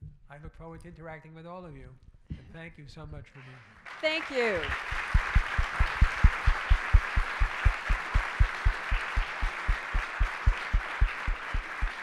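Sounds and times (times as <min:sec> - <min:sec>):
audience applauding: 0:03.8 - 0:12.0
short low thumps: 0:05.0 - 0:12.0.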